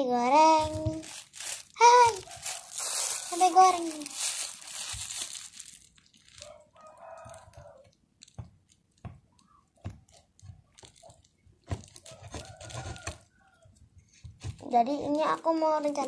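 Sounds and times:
faint handling rustle: 0.5s - 7.8s.

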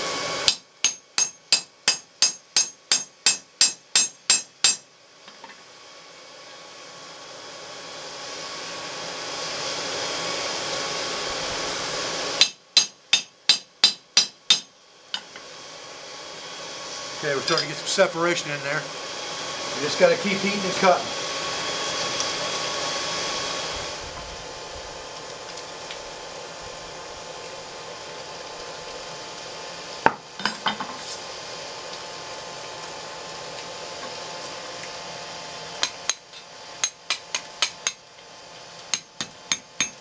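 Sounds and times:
forge blower hissing: 0.0s - 40.0s
hammer striking chisel on steel: 0.5s - 4.8s, 12.4s - 14.7s, 35.8s - 38.0s, 38.9s - 40.0s.

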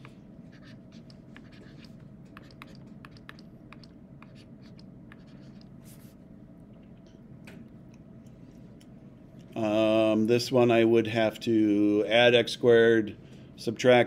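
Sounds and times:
stylus tapping and scratching screen: 0.0s - 6.2s
steady low hum: 0.0s - 14.0s.

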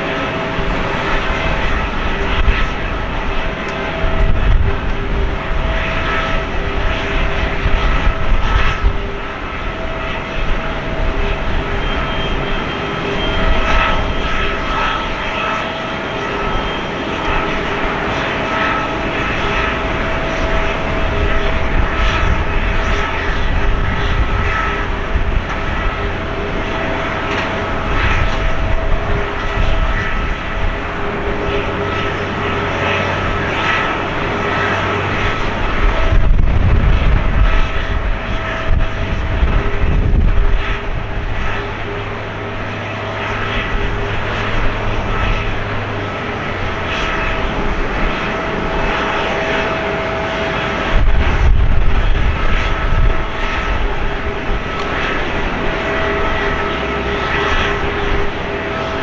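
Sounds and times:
jet engine whine: 0.0s - 59.0s
low rumble: 19.1s - 59.0s.

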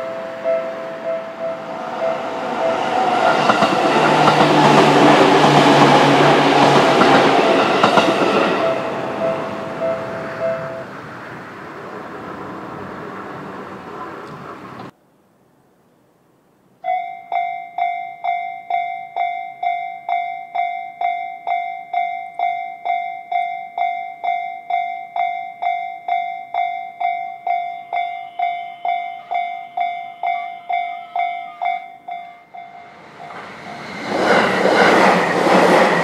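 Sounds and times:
level-crossing alarm ringing: 0.0s - 10.9s, 16.9s - 36.0s
passing train: 0.0s - 15.0s, 16.8s - 36.0s.

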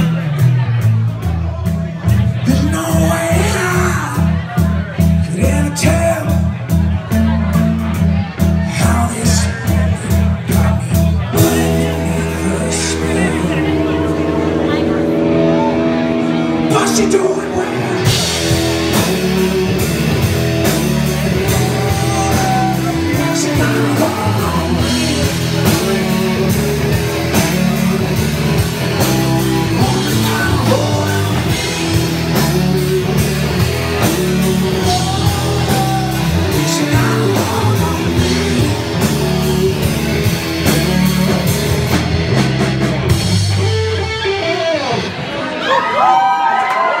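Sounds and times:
man singing: 0.0s - 42.0s
live rock band playing: 0.0s - 47.0s.

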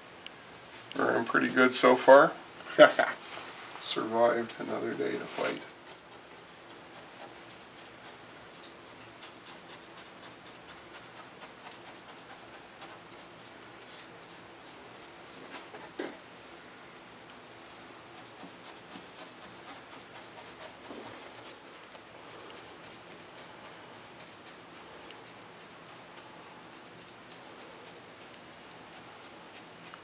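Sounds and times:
paintbrush dabbing and brushing: 4.6s - 16.0s, 18.0s - 30.0s.

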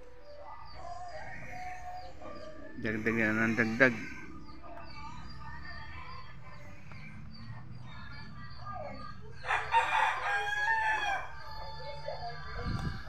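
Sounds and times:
rooster crowing: 9.4s - 11.6s.

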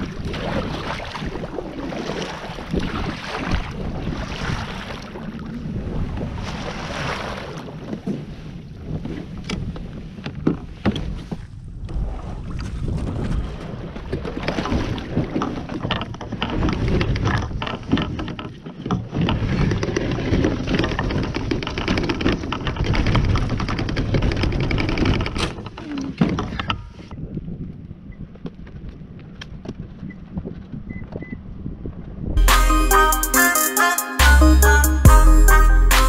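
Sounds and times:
plastic hull scraping over gravel: 12.0s - 25.7s.

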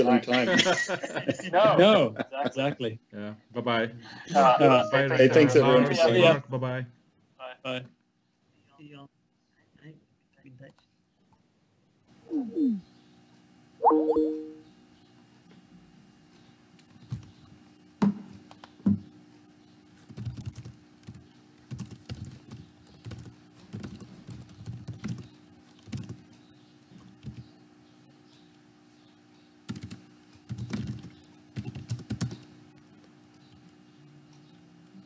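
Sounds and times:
computer keyboard typing: 20.1s - 26.2s, 27.2s - 27.5s, 29.7s - 32.9s.

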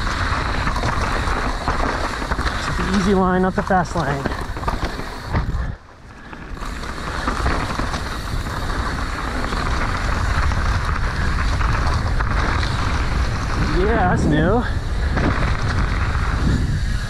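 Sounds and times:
tyres rattling over dirt: 0.0s - 17.0s
wind rushing over microphone: 6.6s - 17.0s.

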